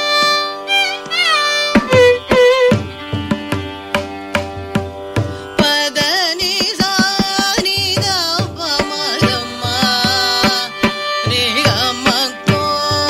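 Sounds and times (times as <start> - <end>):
ornamented sliding melody: 0.0 - 5.2
drum strokes: 1.7 - 5.4.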